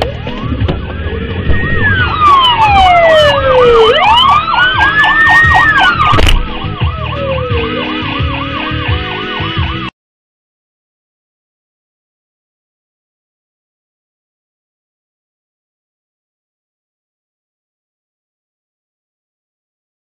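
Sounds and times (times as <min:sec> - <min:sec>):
fast warbling siren: 0:00.0 - 0:09.9
wailing siren: 0:00.0 - 0:09.9.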